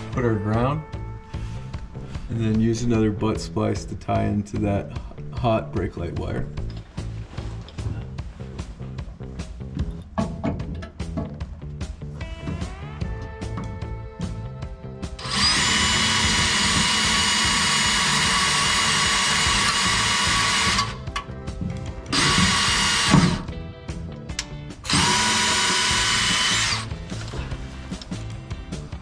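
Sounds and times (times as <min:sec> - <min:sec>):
cordless drill whining: 0:15.2 - 0:21.2, 0:22.1 - 0:23.5, 0:24.8 - 0:27.4.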